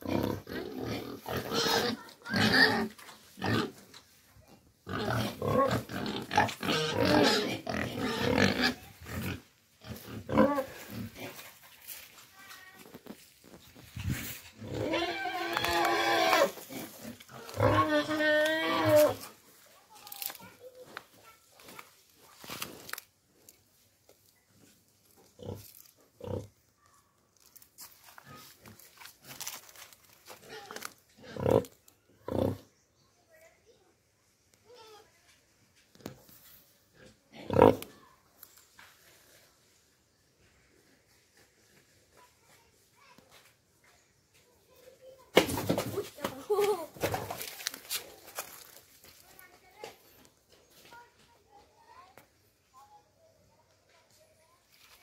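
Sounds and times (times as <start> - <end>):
pigs grunting: 0.0 - 3.8, 4.9 - 11.5, 14.6 - 19.2, 30.4 - 32.6, 37.0 - 38.0
pig grunting: 4.9 - 11.4, 30.6 - 32.6.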